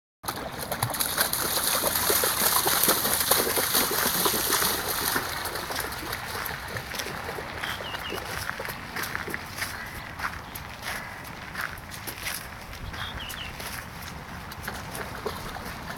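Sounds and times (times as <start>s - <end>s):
flowing water rushing: 0.3s - 9.6s
dog splashing through water: 0.3s - 9.7s, 14.6s - 15.9s.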